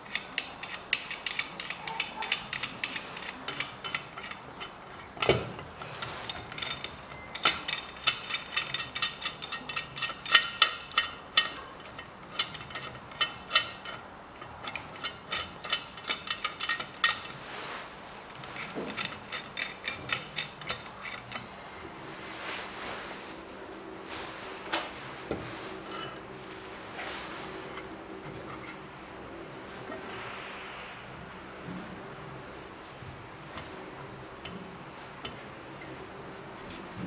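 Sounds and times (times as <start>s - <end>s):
rapid ratcheting clicks: 0.0s - 5.4s.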